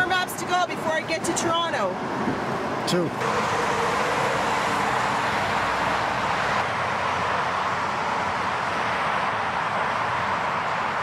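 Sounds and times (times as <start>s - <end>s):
cars hissing on wet road: 3.2s - 11.0s.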